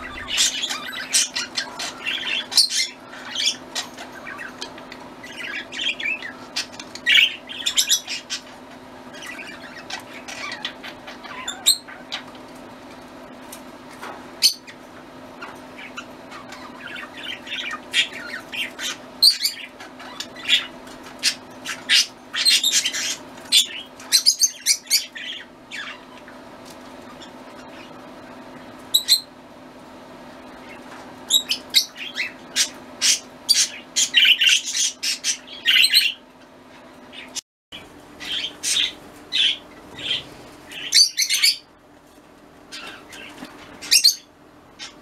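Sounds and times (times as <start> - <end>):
budgerigars chirping: 0.0 - 12.3, 15.4 - 26.4, 30.6 - 36.2, 37.1 - 41.7, 42.7 - 45.0
steady low hum: 0.0 - 45.0.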